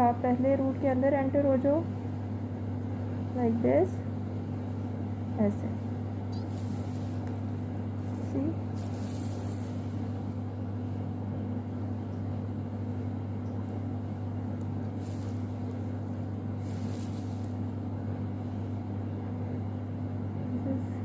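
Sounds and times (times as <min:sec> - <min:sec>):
low electrical hum: 0:00.0 - 0:21.0
faint hisses: 0:06.4 - 0:07.4, 0:08.0 - 0:10.0, 0:14.9 - 0:17.7.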